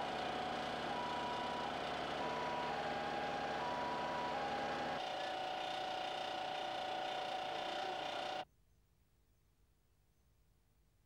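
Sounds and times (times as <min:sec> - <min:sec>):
machinery humming: 0:00.0 - 0:08.4.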